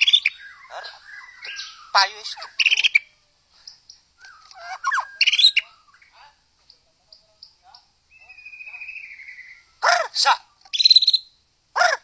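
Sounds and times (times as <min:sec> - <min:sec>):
bird singing whistled song: 0:00.0 - 0:03.1, 0:04.2 - 0:06.1, 0:07.4 - 0:09.8, 0:10.7 - 0:11.4.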